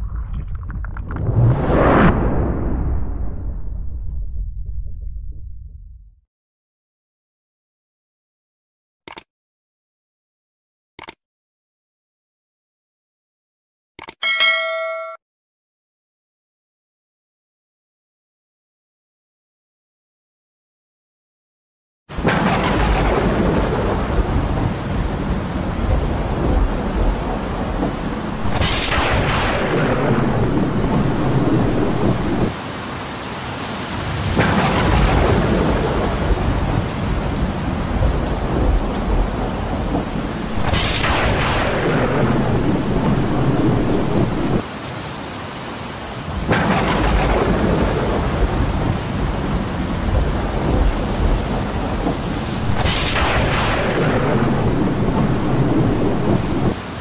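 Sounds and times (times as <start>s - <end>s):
thunder crack and rumble: 0.0s - 6.2s, 22.1s - 32.6s, 34.1s - 44.7s, 46.3s - 57.0s
heavy rain: 22.1s - 57.0s.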